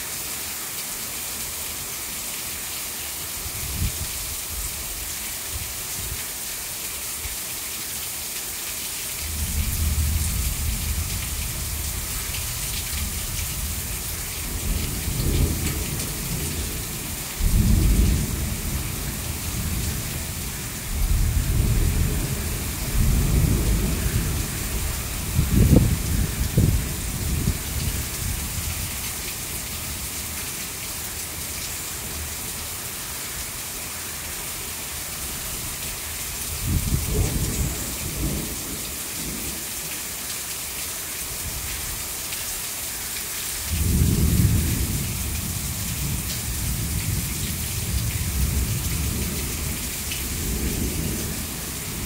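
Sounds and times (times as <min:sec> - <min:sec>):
heavy rain pouring: 0:00.0 - 0:52.0
water streaming off roof: 0:00.0 - 0:52.0
thunder rumbling: 0:14.5 - 0:28.9, 0:36.6 - 0:39.5.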